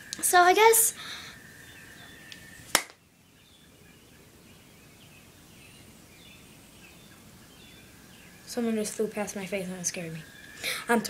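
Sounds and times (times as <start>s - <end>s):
faint bird chirps: 0.0s - 11.0s.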